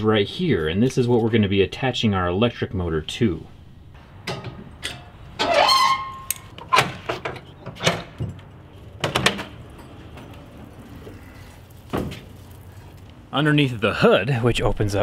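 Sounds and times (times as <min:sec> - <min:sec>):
metal clanks and knocks: 0:04.0 - 0:11.1
hood latch creaking: 0:04.2 - 0:10.4.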